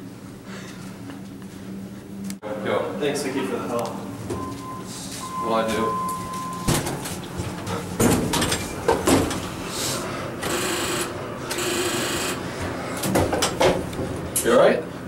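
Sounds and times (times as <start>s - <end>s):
elevator knocks and clatters: 6.6s - 9.5s.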